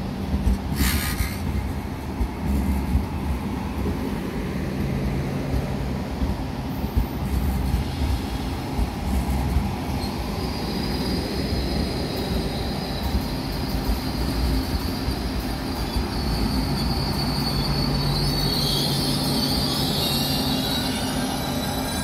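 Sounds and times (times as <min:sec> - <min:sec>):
train wheels rumbling on track: 0:00.0 - 0:22.0
high wheel squeal: 0:09.1 - 0:22.0.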